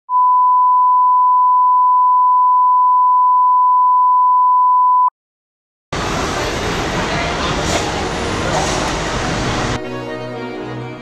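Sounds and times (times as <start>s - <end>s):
steady test tone beep: 0.1s - 5.1s.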